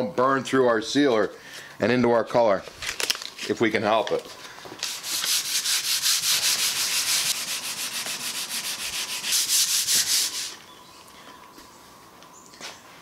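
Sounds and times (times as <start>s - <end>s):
hand sanding wood: 4.8s - 10.6s.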